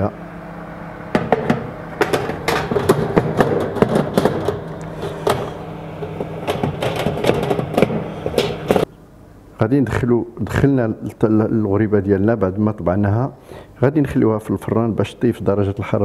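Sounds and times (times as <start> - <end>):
steady low hum: 0.0 - 16.0
metal tray scraping on wire rack: 2.0 - 8.8.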